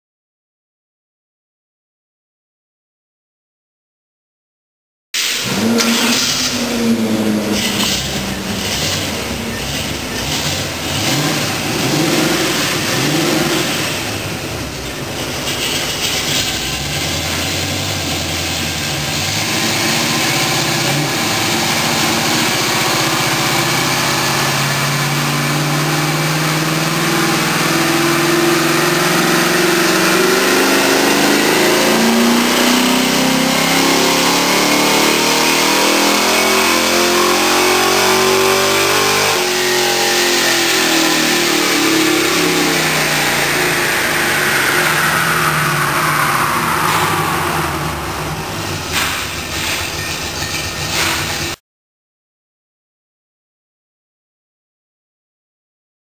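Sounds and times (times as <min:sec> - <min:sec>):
car engine revving on dyno: 0:05.2 - 0:49.9.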